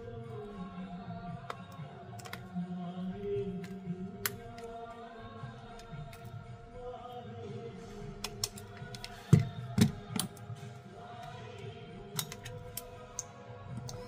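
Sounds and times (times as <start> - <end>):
quiet background music: 0.0 - 14.0
small clicks and knocks of handling: 1.5 - 2.5, 12.1 - 14.0.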